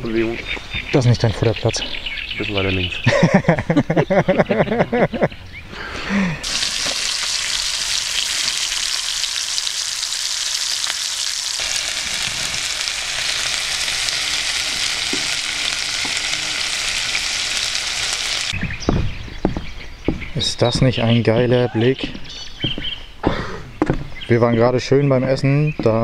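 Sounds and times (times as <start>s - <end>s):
meat sizzling in a pan: 6.4s - 18.6s.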